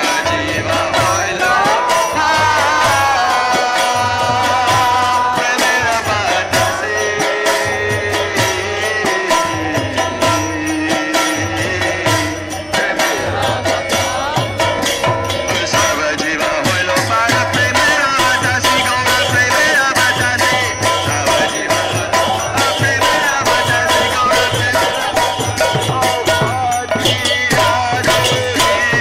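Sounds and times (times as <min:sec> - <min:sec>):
group devotional singing: 0:00.0 - 0:29.0
hand drums fast beat: 0:00.0 - 0:29.0
lead voice through microphone: 0:00.0 - 0:29.0.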